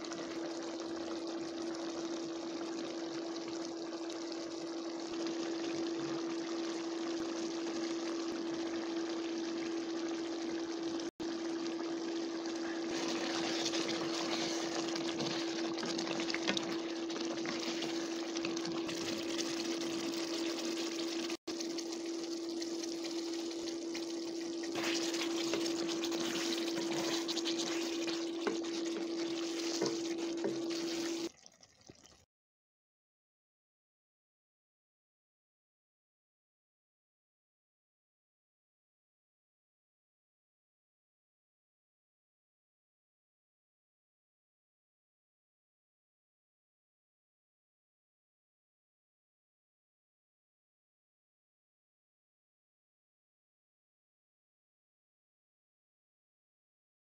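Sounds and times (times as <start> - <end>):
curry bubbling in a pan: 0.0 - 32.3.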